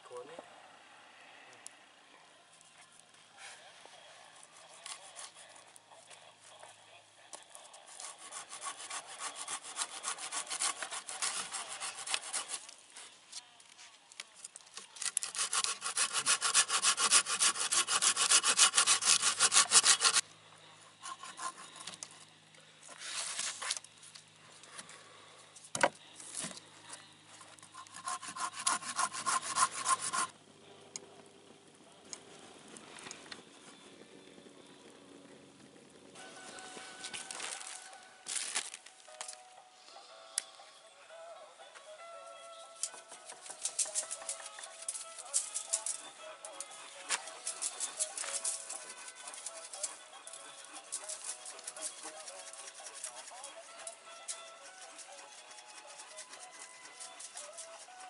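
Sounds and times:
hand saw cutting log: 7.9s - 12.8s, 15.0s - 20.2s, 21.0s - 22.0s, 27.7s - 30.3s, 42.9s - 46.0s, 47.1s - 58.0s.

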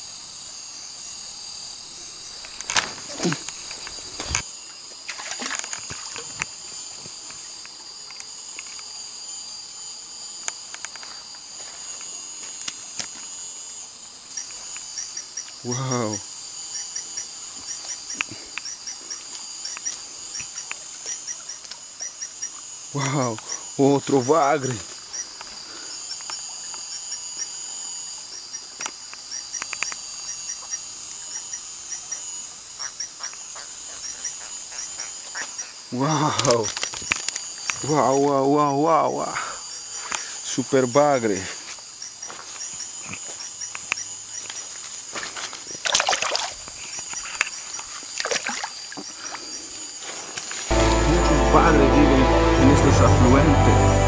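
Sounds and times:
insects droning: 0.0s - 54.0s
sharp clicks: 16.8s - 23.6s, 28.4s - 30.8s, 43.6s - 44.5s.

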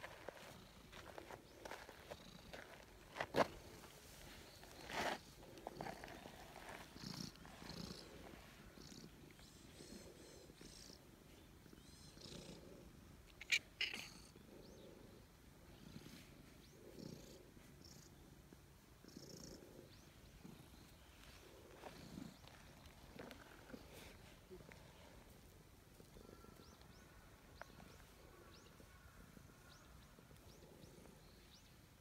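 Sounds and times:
cat purring: 4.2s - 26.9s.

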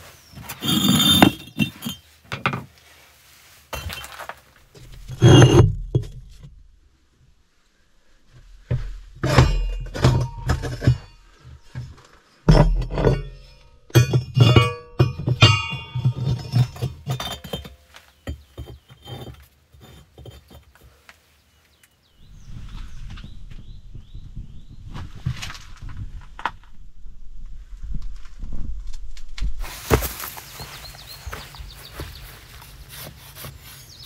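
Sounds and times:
iron and brick clinking and thunking: 0.3s - 2.7s, 3.7s - 6.6s, 8.7s - 21.0s.

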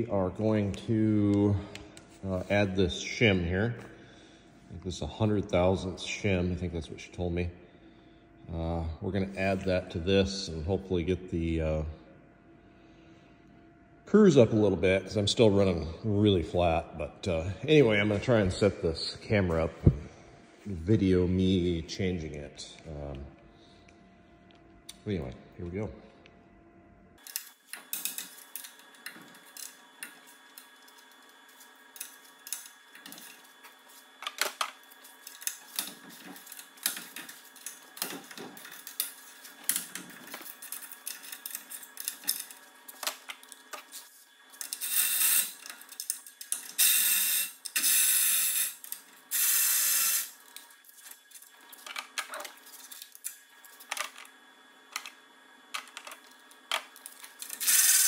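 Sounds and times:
rapid ratchet clicking: 57.6s - 58.0s.

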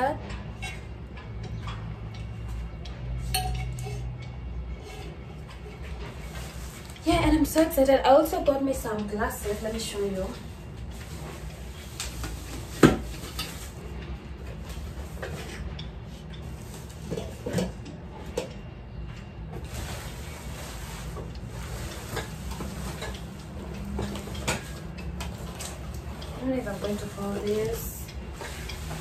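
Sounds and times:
steady low hum: 0.0s - 29.0s
dishes clinking and knocking: 3.0s - 4.2s.

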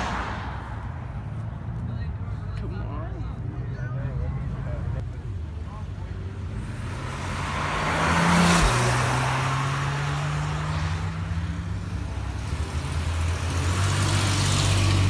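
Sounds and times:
vehicle approaching: 0.0s - 15.0s
car accelerating past: 6.5s - 15.0s.

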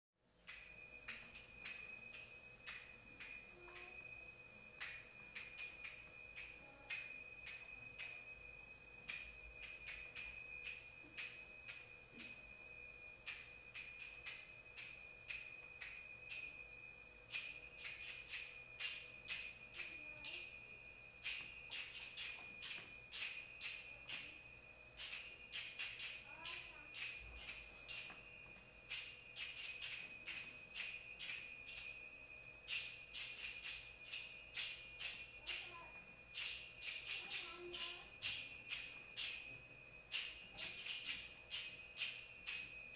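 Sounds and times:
finger cymbals ringing: 0.3s - 42.9s.

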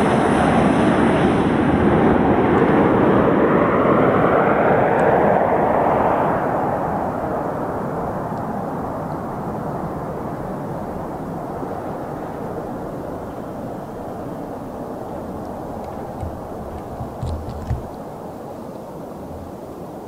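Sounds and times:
turboprop plane passing overhead: 0.0s - 18.4s.

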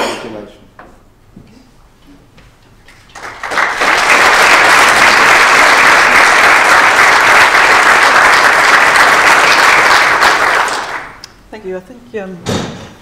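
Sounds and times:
audience applauding: 2.9s - 11.2s.

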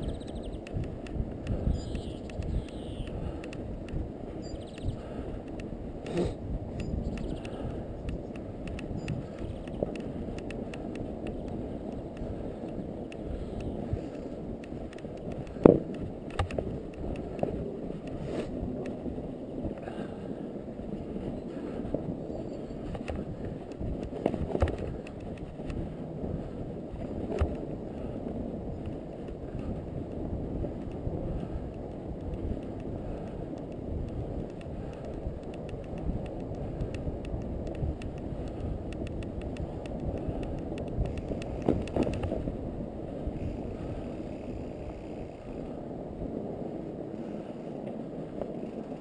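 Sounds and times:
sharp clicks: 0.0s - 18.2s
bike tyres rumbling on snow: 0.0s - 49.0s
wind on microphone: 0.0s - 49.0s.

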